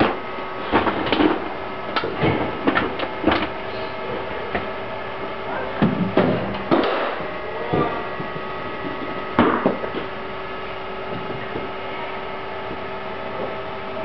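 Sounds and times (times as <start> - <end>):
steady hum: 0.0 - 14.0.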